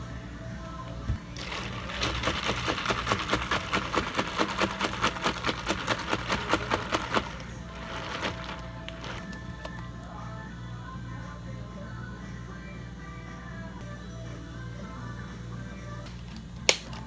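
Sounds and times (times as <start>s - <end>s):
ice rattling in plastic cup: 1.4s - 9.7s.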